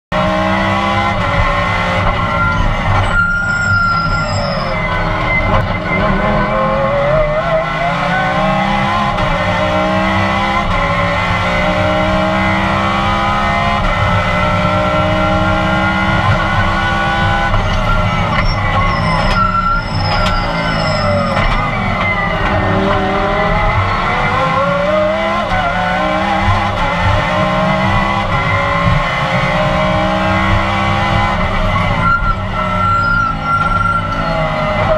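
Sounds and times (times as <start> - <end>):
race car engine revving: 0.1 - 34.9
brief high squeal: 2.3 - 6.4, 17.6 - 22.4, 31.8 - 34.5.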